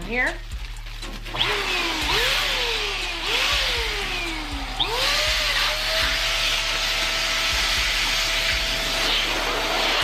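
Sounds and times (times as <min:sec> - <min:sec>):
electric pump whining: 0:00.5 - 0:10.0.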